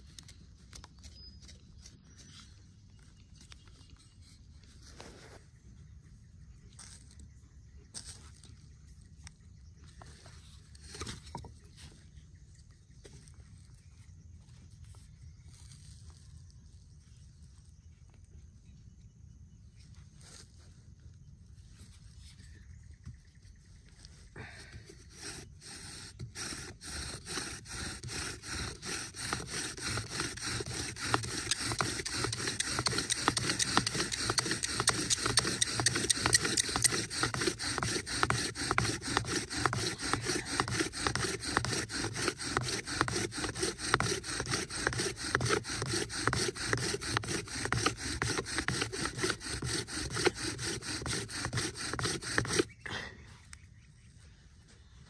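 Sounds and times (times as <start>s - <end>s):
bow drill spindle rubbing wood: 9.8s - 12.1s, 24.6s - 52.8s.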